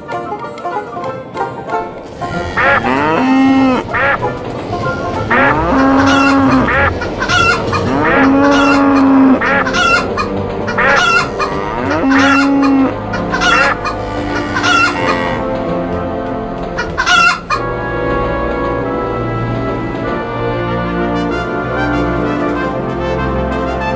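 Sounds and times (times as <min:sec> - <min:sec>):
long low chicken calls: 0:02.2 - 0:15.6, 0:16.8 - 0:17.7
chicken clucking: 0:02.2 - 0:15.7, 0:16.6 - 0:17.7.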